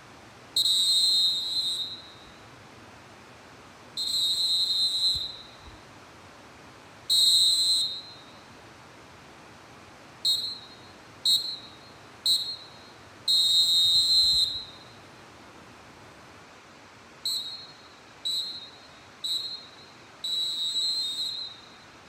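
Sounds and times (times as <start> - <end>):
referee whistle blasts: 0.6 - 2.4, 4.0 - 5.7, 7.1 - 8.4, 10.2 - 15.0, 17.2 - 21.9.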